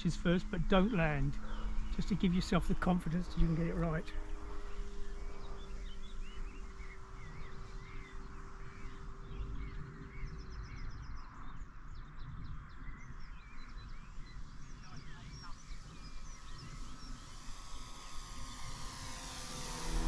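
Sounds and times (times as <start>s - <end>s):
faint hum: 0.0s - 20.0s
small birds chirping: 0.0s - 20.0s
wind on microphone: 8.8s - 20.0s.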